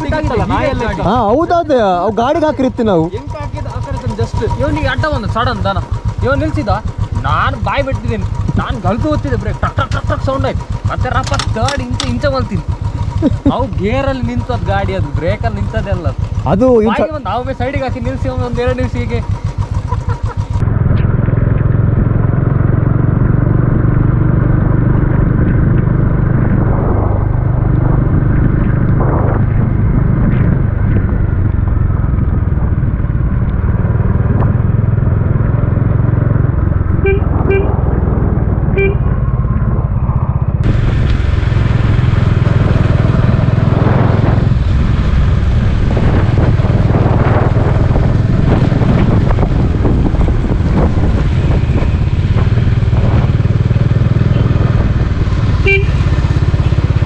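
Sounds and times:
motorcycle engine running: 0.0s - 57.0s
road and wind noise: 0.0s - 57.0s
vehicle horn toots: 37.0s - 37.8s, 38.7s - 39.2s, 55.6s - 56.8s.

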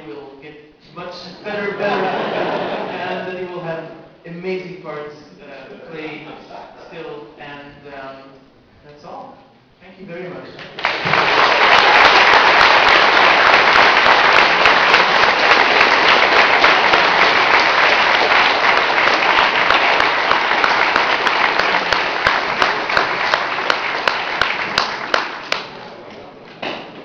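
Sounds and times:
audience applauding: 10.6s - 26.0s.

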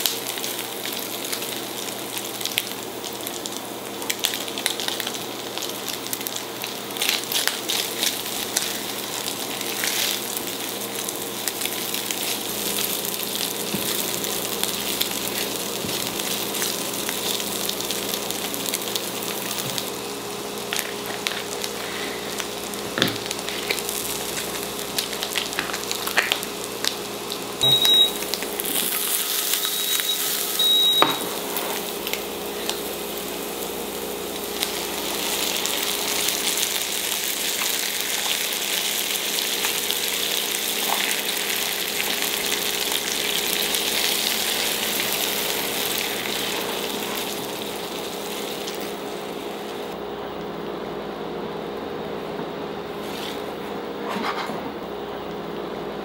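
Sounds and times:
food sizzling in a frying pan: 0.0s - 50.0s
short high beeps: 27.6s - 28.2s, 29.6s - 31.3s.

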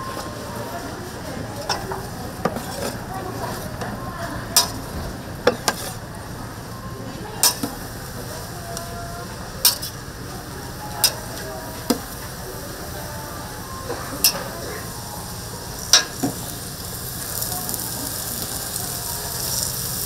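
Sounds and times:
metal utensil clacks: 1.6s - 3.0s, 4.6s - 4.8s, 7.4s - 7.7s, 9.6s - 10.0s
meat patties sizzling: 14.0s - 20.0s.

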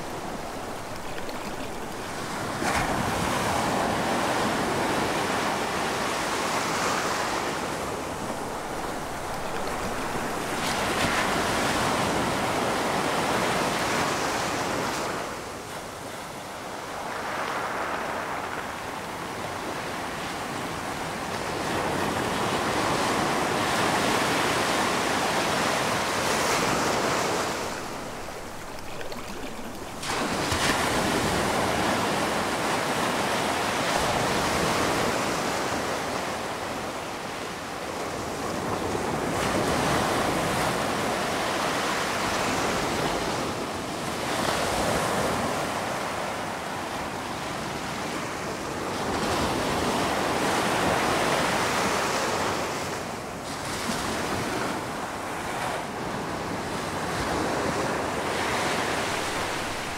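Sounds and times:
ocean waves breaking: 0.0s - 14.6s, 25.0s - 36.2s, 57.7s - 59.9s.

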